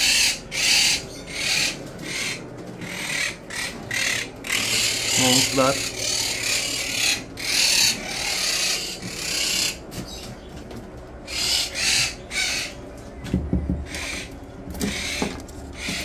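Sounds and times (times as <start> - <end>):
parrots screeching: 0.0 - 10.3, 11.2 - 12.8, 13.8 - 16.0.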